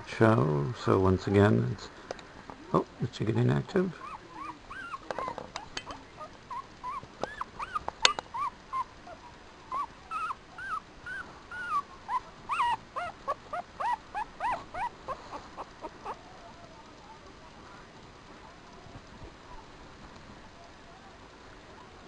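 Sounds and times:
puppy squeaking and whimpering: 0:04.0 - 0:16.2
sharp click: 0:07.2 - 0:08.3.

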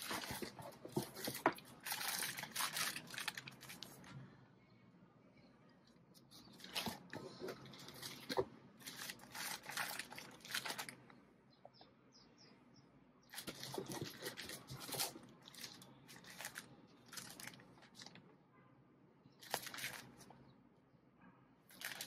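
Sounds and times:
plastic bags crinkling: 0:00.0 - 0:04.1, 0:06.6 - 0:11.0, 0:13.3 - 0:18.2, 0:19.4 - 0:20.3, 0:21.7 - 0:22.0.

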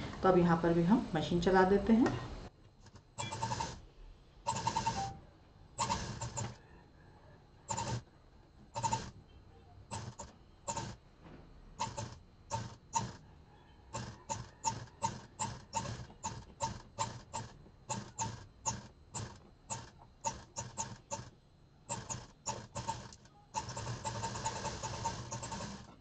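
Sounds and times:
sewing machine stitching: 0:02.8 - 0:03.8, 0:04.5 - 0:05.1, 0:05.8 - 0:06.6, 0:07.7 - 0:08.0, 0:08.8 - 0:09.2, 0:09.9 - 0:11.0, 0:11.8 - 0:13.2, 0:13.9 - 0:21.3, 0:21.9 - 0:26.0.

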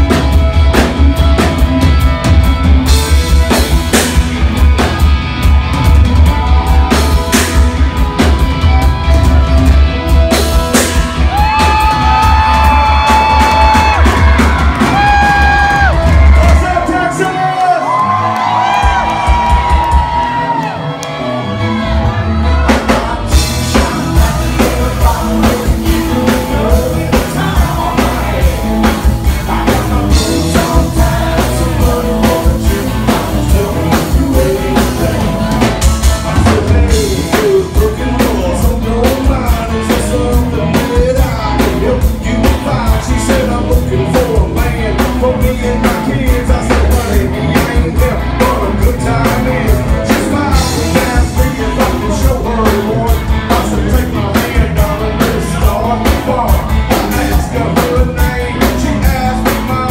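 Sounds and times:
drum kit beat: 0:00.0 - 0:17.5, 0:18.6 - 0:20.7, 0:22.0 - 0:59.9
electric guitar: 0:00.0 - 0:59.9
man singing into microphone: 0:22.6 - 0:59.9.

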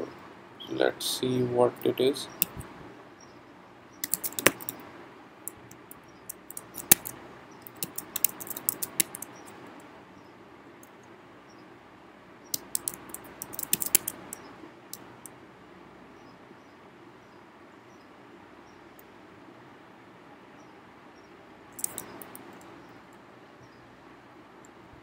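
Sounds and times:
keyboard keys clicking: 0:04.0 - 0:04.8, 0:06.4 - 0:09.3, 0:12.6 - 0:14.3
sharp single key clicks: 0:21.8 - 0:22.4.

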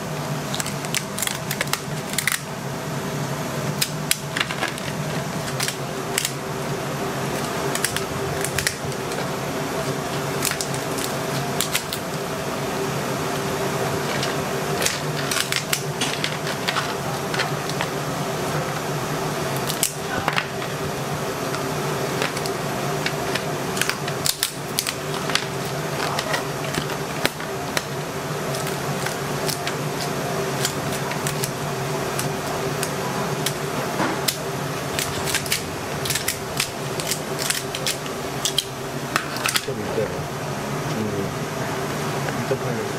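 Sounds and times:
steady background hum: 0:00.0 - 0:42.9
scissors cutting crab shell: 0:00.5 - 0:02.5, 0:03.8 - 0:06.4, 0:07.4 - 0:09.2, 0:09.8 - 0:12.2, 0:14.1 - 0:17.8, 0:19.6 - 0:20.1, 0:22.3 - 0:38.7.

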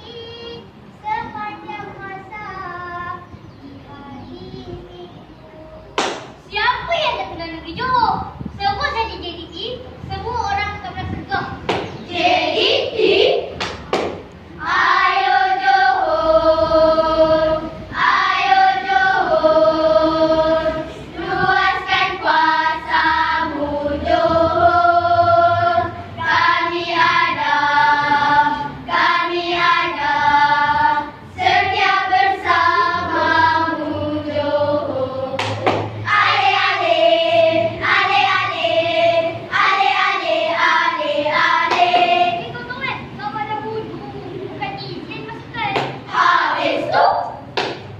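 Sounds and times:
children's choir singing: 0:00.0 - 0:00.9, 0:11.7 - 0:42.7, 0:45.8 - 0:47.9.

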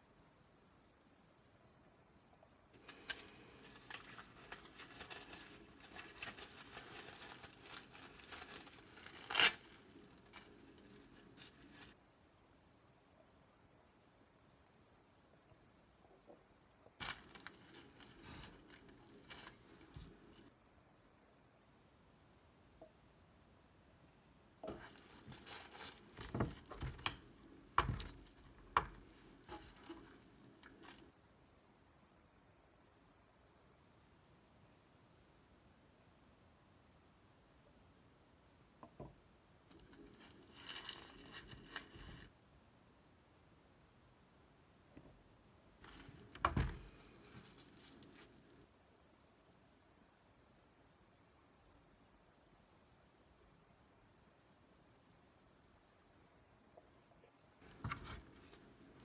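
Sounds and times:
lens tissue rustling: 0:02.8 - 0:12.0, 0:17.0 - 0:20.5, 0:24.6 - 0:31.1, 0:39.7 - 0:42.3, 0:45.8 - 0:48.6, 0:57.6 - 0:59.0
plastic bag crinkling: 0:02.8 - 0:12.0, 0:17.0 - 0:20.5, 0:24.7 - 0:31.1, 0:39.7 - 0:42.3.

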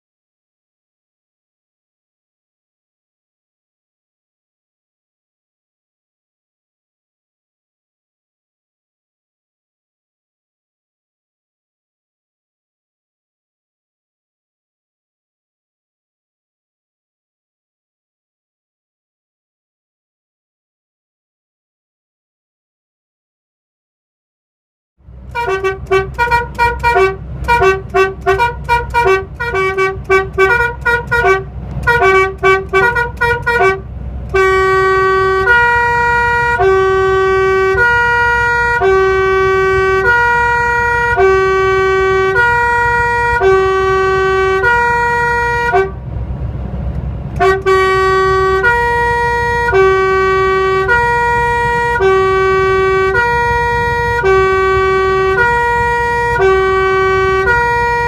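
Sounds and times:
truck musical air horn: 0:25.3 - 0:46.1, 0:47.4 - 0:58.0.

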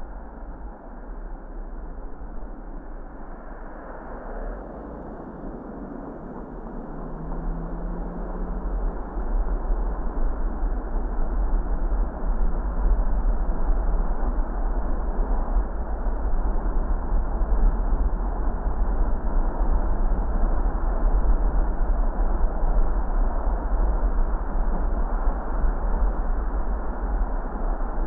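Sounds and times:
car rumble: 0:04.6 - 0:11.2.

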